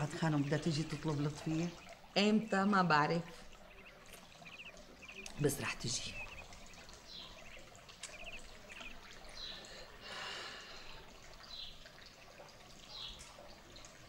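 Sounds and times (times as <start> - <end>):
faint birdsong: 0.0 - 14.0.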